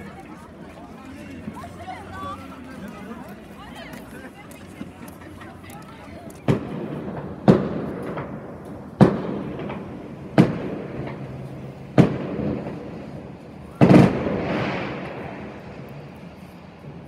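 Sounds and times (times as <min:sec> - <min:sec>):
fireworks crackle: 0:05.8 - 0:17.0
fireworks bangs with echo: 0:06.4 - 0:16.2.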